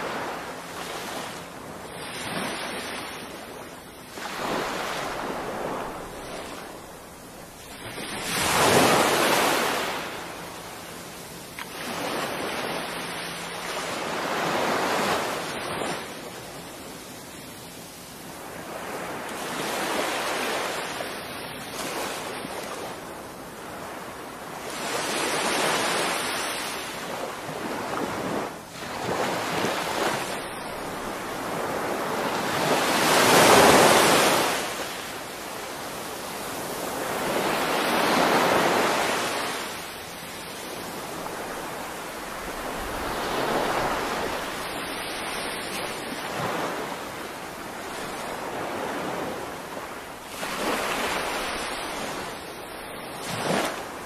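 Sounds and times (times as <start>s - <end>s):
small waves breaking on beach: 0.0s - 54.0s.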